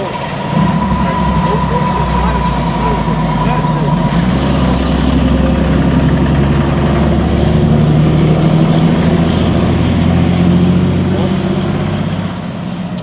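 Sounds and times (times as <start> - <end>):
diesel engine droning: 0.0 - 13.0.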